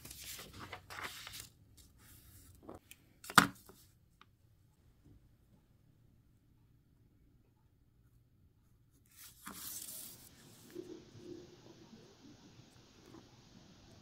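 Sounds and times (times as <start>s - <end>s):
paper rustling: 0.0s - 3.8s, 9.1s - 10.7s.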